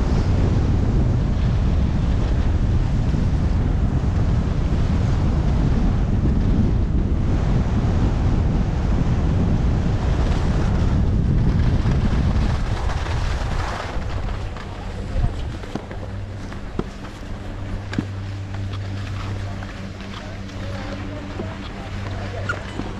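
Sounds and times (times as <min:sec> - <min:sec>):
wind buffeting microphone: 0:00.0 - 0:22.9
skis sliding over snow: 0:10.0 - 0:22.9.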